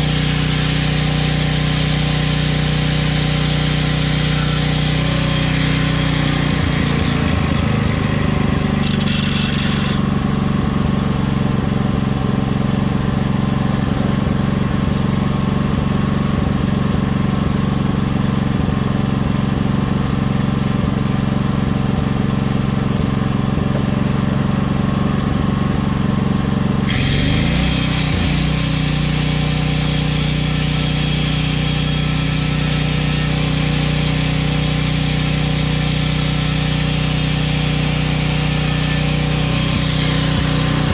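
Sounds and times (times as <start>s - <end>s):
angle grinder cutting steel: 0.0s - 10.1s, 26.8s - 40.9s
motor running steadily: 0.0s - 40.9s.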